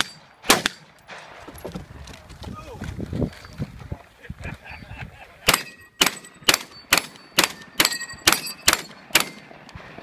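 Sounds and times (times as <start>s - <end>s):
shotgun shots: 0.0s - 1.4s, 5.5s - 10.0s
metallic ring of steel plates: 5.6s - 9.5s.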